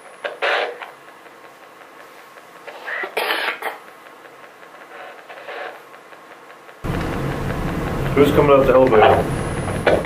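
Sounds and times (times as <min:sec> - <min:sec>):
steady hiss: 0:00.0 - 0:10.0
person coughing: 0:02.9 - 0:03.8.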